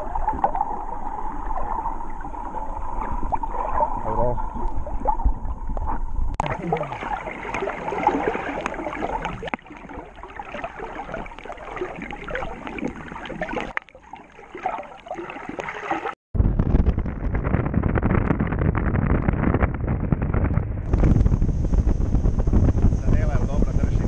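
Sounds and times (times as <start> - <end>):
underwater bubbling: 0.0 - 16.2
underwater fine crackling: 0.0 - 24.0
wind rushing on microphone: 16.4 - 24.0.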